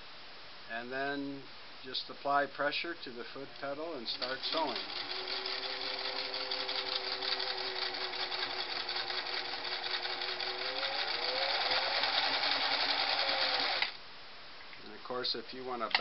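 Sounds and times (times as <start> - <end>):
sewing machine clattering: 4.1 - 13.9.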